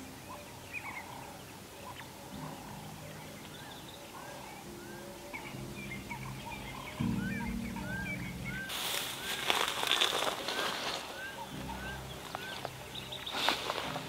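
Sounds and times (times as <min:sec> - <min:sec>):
birds chirping and whistling: 0:00.0 - 0:14.0
low hum: 0:04.6 - 0:09.2.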